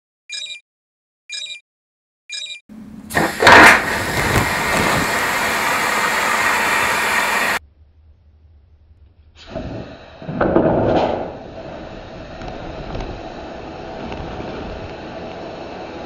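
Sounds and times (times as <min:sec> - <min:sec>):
compressed gas jet hissing: 0:03.1 - 0:07.6, 0:09.4 - 0:10.5, 0:11.2 - 0:16.0.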